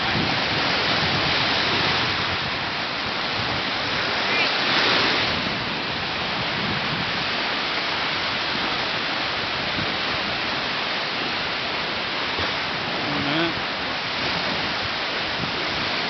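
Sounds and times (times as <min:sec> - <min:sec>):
waves breaking on sandy beach: 0:00.0 - 0:16.0.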